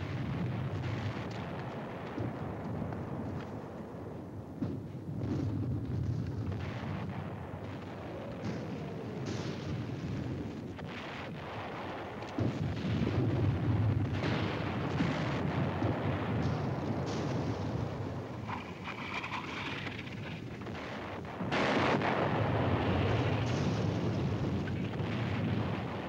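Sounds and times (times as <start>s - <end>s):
artillery fire rumble: 0.0s - 26.0s
gunfire cracks: 14.0s - 26.0s.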